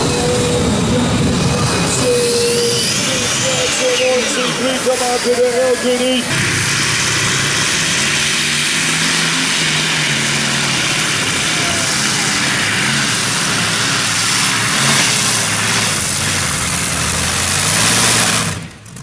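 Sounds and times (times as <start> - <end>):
tractor engines roaring: 0.0 - 19.0.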